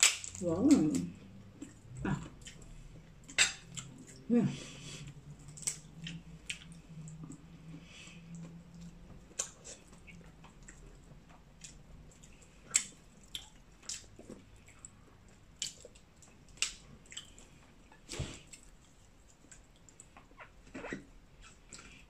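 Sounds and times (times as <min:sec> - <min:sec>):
crab shell cracking: 0:00.0 - 0:00.4
wet squishing: 0:00.0 - 0:04.2.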